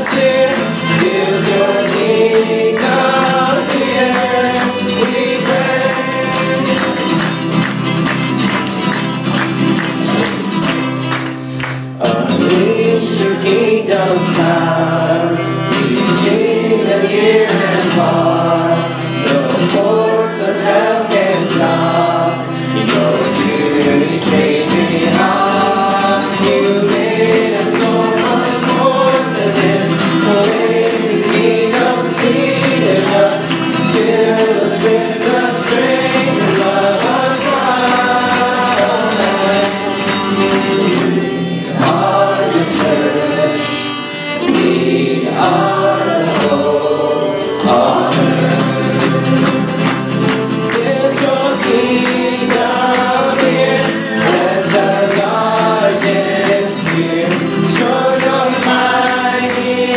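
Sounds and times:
group singing worship song: 0.0 - 59.9
strummed acoustic guitars: 0.0 - 59.9
bowed violin: 12.6 - 49.4.

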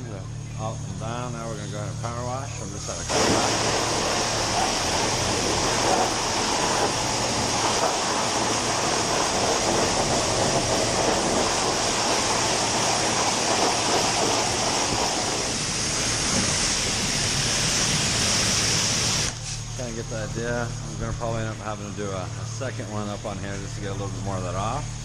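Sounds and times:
low steady hum: 0.0 - 25.0
pressure washer spray hissing: 3.0 - 20.1.

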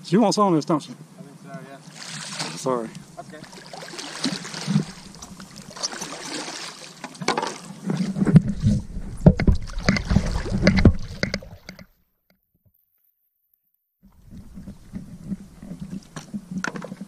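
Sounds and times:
water splashing: 1.7 - 11.9
paddle knocks: 3.3 - 11.8
wind rumble on microphone: 8.1 - 11.6, 14.1 - 17.0.

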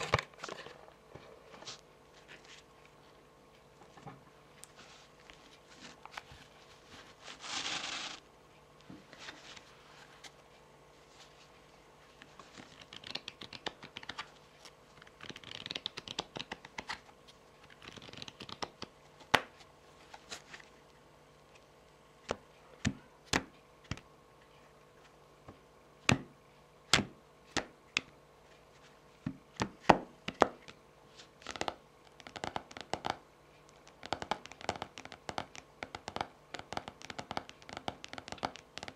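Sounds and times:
cards rustling and sliding: 4.7 - 8.2
cards shuffling: 7.0 - 8.2, 12.2 - 14.4, 15.0 - 20.7
fingernails tapping on cards: 31.4 - 38.9.

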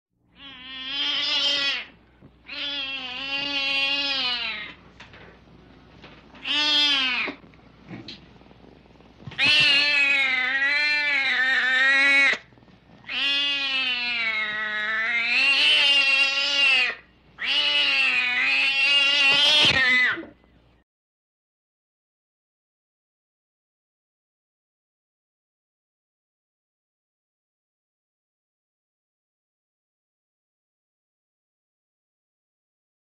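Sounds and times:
cat yowling: 0.3 - 4.8, 6.4 - 7.4, 9.4 - 20.4.

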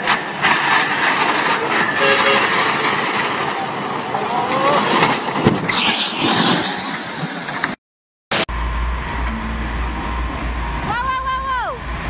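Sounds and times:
truck crashing onto its side: 4.6 - 7.7
loud rushing hiss: 5.7 - 8.4.

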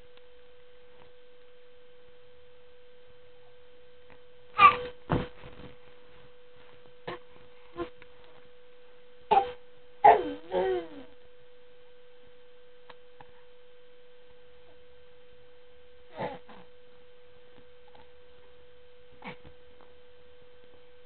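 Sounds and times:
steady electrical hum: 0.0 - 21.0
baby vocalizing: 4.6 - 4.8, 9.3 - 11.1, 16.1 - 16.7.

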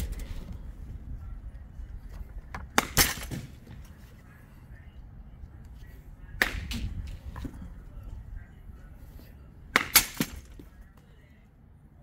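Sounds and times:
baseball bat hitting ball: 2.6 - 3.8, 6.4 - 7.7, 9.7 - 10.8.

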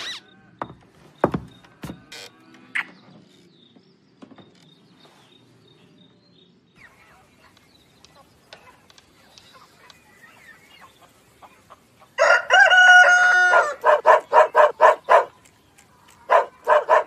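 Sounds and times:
chicken clucks: 8.1 - 13.0
rooster crowing: 12.2 - 14.0.

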